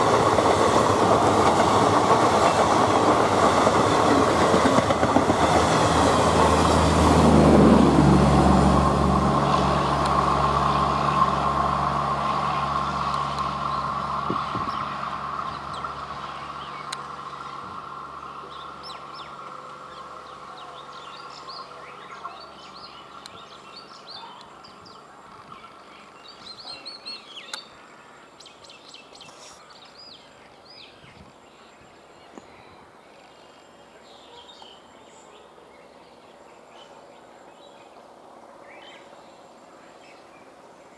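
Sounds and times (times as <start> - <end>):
train coaches rolling on rails: 0.0 - 26.8.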